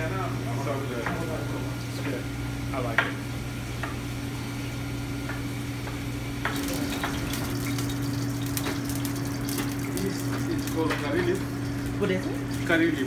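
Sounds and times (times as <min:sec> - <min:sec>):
low machinery hum: 0:00.0 - 0:13.0
food sizzling in frying pans: 0:06.4 - 0:13.0.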